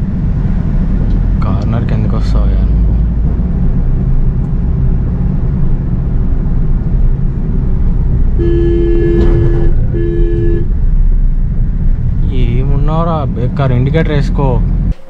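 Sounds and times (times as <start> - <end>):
engine and road noise in car: 0.0 - 15.0
car horn blasts: 8.3 - 10.8.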